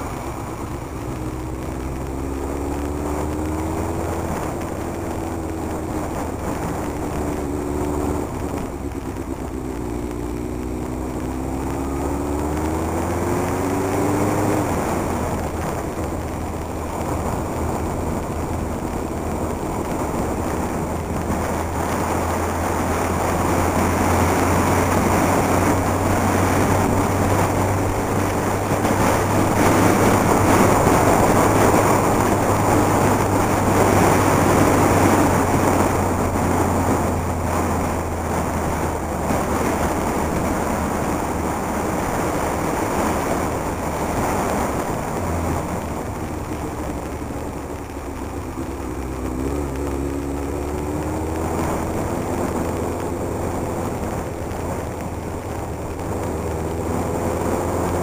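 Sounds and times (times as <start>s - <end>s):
motorcycle engine hum: 0.0s - 58.0s
wind and road rush: 0.0s - 58.0s.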